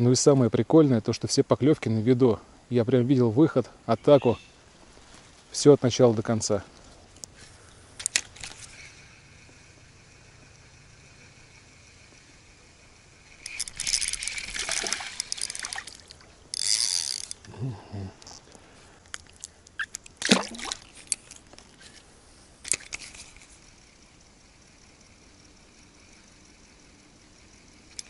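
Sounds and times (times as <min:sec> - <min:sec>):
fishing reel ratcheting and whirring: 0:13.2 - 0:17.5, 0:22.6 - 0:28.0.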